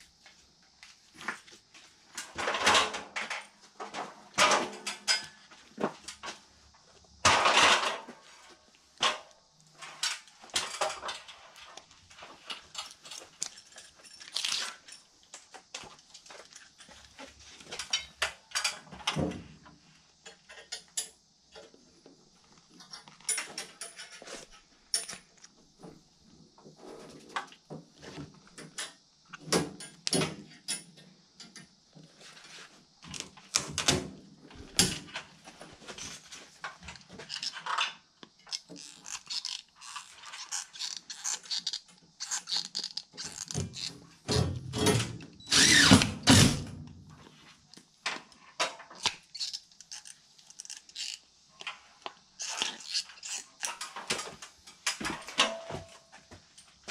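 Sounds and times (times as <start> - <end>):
hand tools clicking and scraping: 35.8 - 46.5, 47.7 - 56.8.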